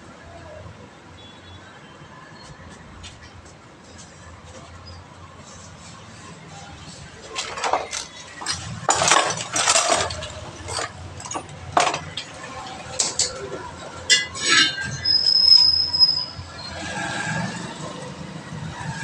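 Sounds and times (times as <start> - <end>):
tyre and wheel rim scraping: 7.2 - 18.0
high squeak: 14.1 - 17.0.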